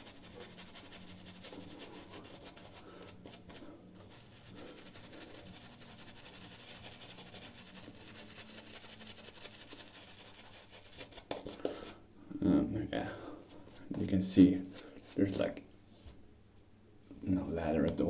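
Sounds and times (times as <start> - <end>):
shaving brush rubbing on beard: 0.0 - 12.0.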